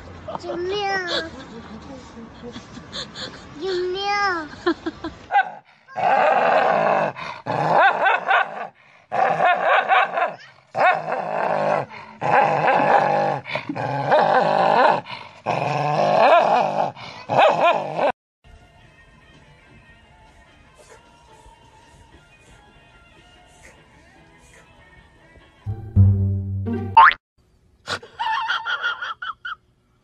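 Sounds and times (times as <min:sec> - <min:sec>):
dogs snarling and growling: 0:05.9 - 0:18.1.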